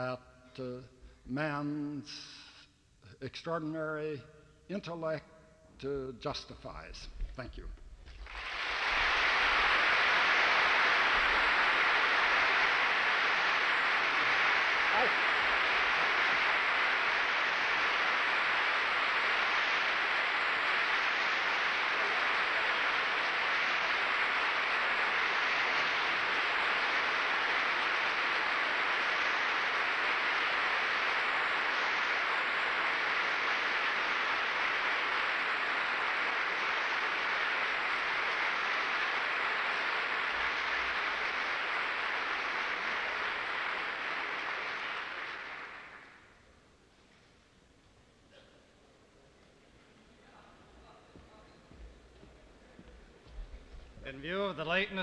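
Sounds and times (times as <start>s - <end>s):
audience applauding: 8.1s - 46.4s.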